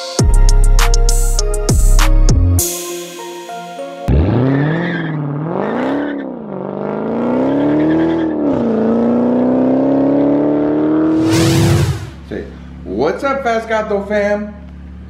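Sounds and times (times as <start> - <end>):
car exhaust revving: 4.1 - 12.3.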